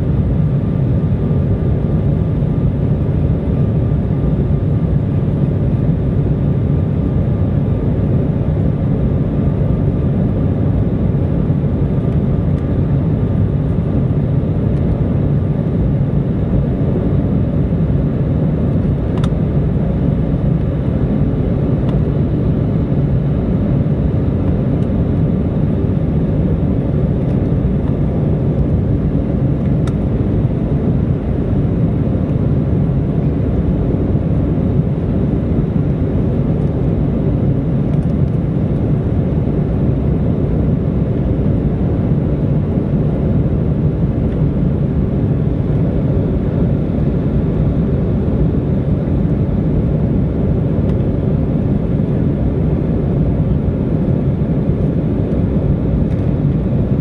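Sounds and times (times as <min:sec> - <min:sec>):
faint steady whine: 0:00.0 - 0:57.0
jet engine rumble in cabin: 0:00.0 - 0:57.0
small click: 0:18.7 - 0:19.4, 0:37.9 - 0:38.4, 0:56.1 - 0:56.3.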